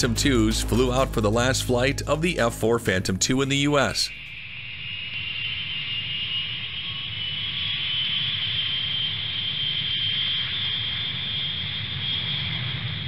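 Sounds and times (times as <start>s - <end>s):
jet engines rushing and whining: 4.1s - 13.0s.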